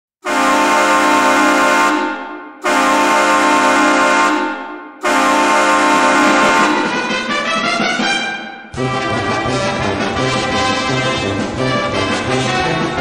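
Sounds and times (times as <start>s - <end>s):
hockey goal horn blasts: 0.2s - 7.6s.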